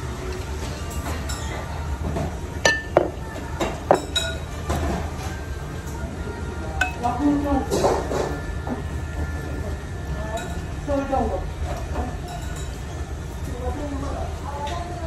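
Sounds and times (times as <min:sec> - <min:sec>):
low background hum: 0:00.0 - 0:15.0
ceramic dishes clinking: 0:00.8 - 0:05.0, 0:06.8 - 0:08.4, 0:12.2 - 0:12.9.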